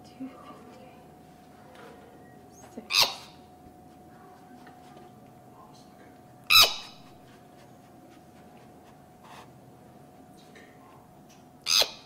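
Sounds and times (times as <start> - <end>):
faint steady hum: 0.0 - 12.0
baby aye-aye squawking: 2.9 - 3.4, 11.7 - 12.0.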